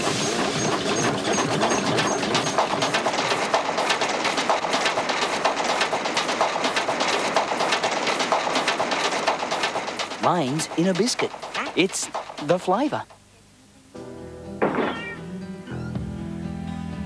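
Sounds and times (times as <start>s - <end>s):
ride wheels clattering on track: 0.0s - 13.3s.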